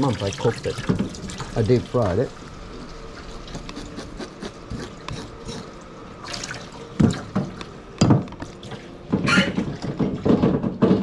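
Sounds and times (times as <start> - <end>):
tap water running into sink: 0.0 - 2.4, 6.2 - 10.8
knife scraping fish scales: 3.5 - 5.7.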